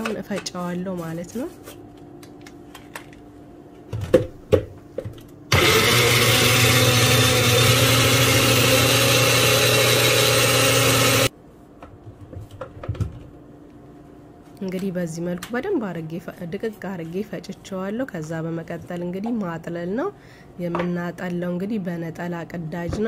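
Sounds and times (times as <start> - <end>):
blender motor grinding: 5.5 - 11.3.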